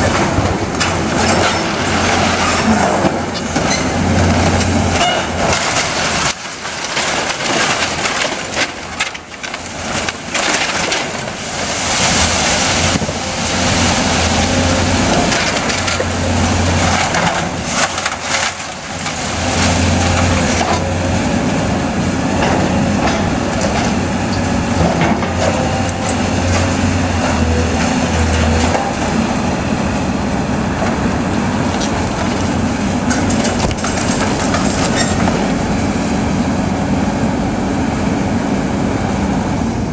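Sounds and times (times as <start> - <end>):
timber cracking and crashing: 0.0 - 20.9, 31.6 - 35.6
excavator diesel engine under load: 0.0 - 39.9.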